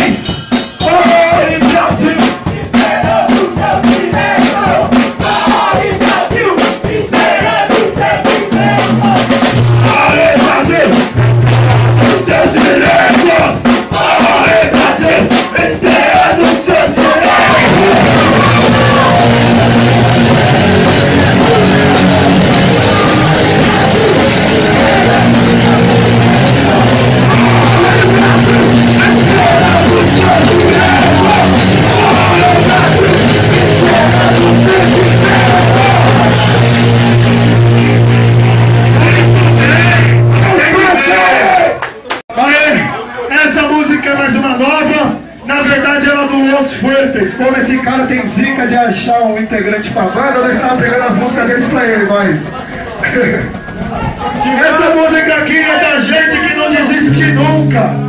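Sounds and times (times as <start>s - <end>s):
drum hits: 0.0s - 41.3s
person shouting singing: 0.8s - 11.0s, 12.0s - 37.1s
loud distorted guitar: 7.5s - 41.4s, 57.0s - 58.0s
low bass notes: 17.3s - 40.7s, 57.0s - 58.0s.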